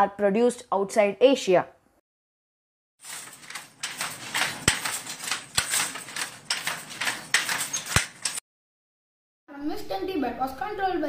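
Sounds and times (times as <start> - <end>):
handloom wooden clatter: 3.0 - 8.4.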